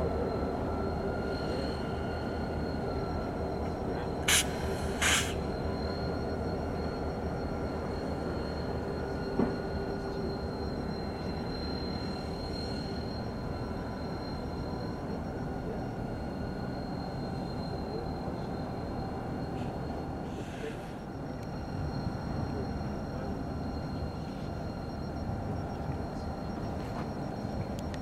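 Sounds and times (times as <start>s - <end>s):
diesel locomotive rumbling: 0.0s - 14.8s
air hiss bursts: 4.3s - 5.4s.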